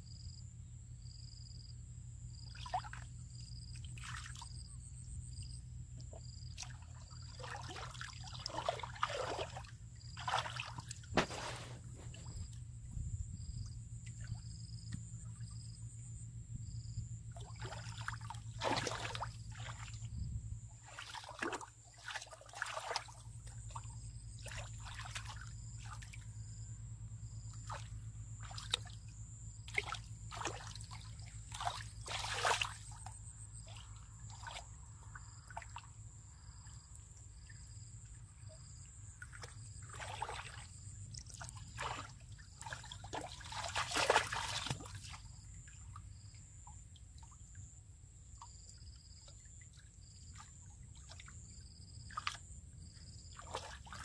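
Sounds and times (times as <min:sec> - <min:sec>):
hands splashing in muddy water: 0:02.5 - 0:03.1, 0:03.9 - 0:04.6, 0:06.5 - 0:12.6, 0:17.4 - 0:20.1, 0:20.8 - 0:26.2, 0:27.5 - 0:29.0, 0:29.6 - 0:35.9, 0:38.6 - 0:45.9, 0:50.0 - 0:54.0.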